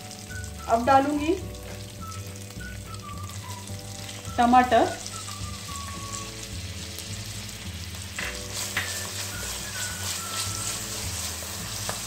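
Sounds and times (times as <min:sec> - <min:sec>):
tomatoes sizzling in oil: 0:00.0 - 0:12.0
spatula stirring: 0:08.0 - 0:12.0.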